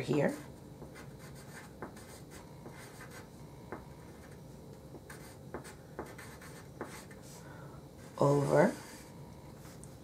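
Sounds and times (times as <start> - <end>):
pen writing on paper: 0.8 - 3.2, 5.1 - 7.2.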